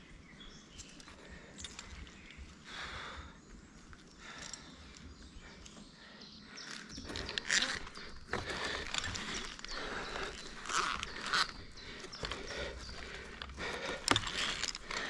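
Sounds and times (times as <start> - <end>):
hard loud breathing: 1.1 - 15.0
clicks of rope ascenders: 6.6 - 15.0.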